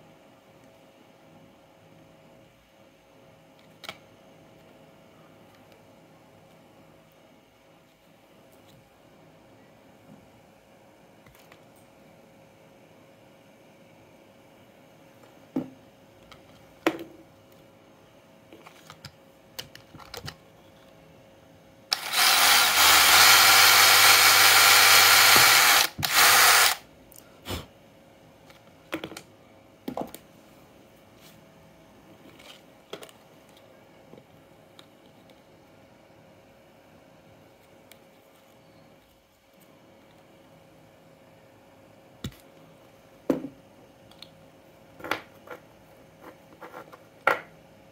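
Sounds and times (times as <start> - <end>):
electric drill boring plastic: 21.9 - 26.8.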